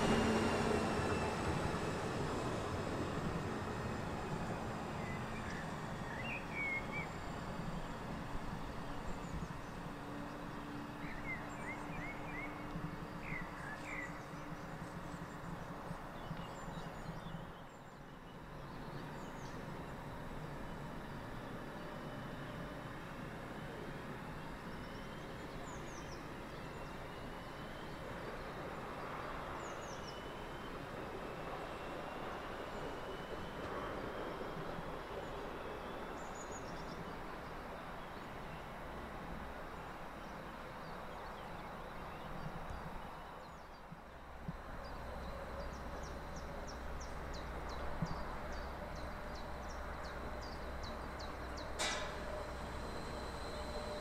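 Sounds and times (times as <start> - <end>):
approaching train hum: 0.0 - 54.0
distant train whine: 0.0 - 54.0
birds chirping: 44.6 - 54.0
sharp click: 51.8 - 52.2.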